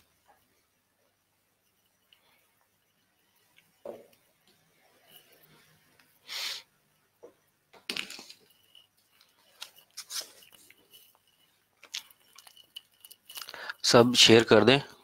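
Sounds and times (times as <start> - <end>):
faint high whine: 0.0 - 15.0
short hiss: 6.2 - 6.7.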